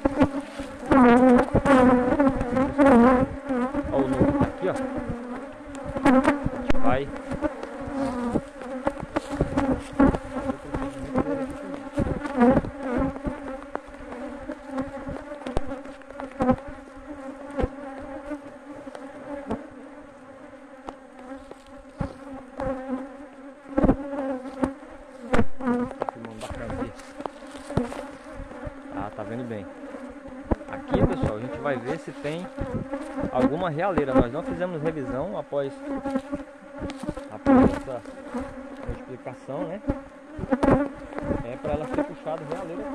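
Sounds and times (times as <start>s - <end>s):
honeybees buzzing: 0.0s - 42.9s
knocks on wooden hive box: 23.8s - 28.6s.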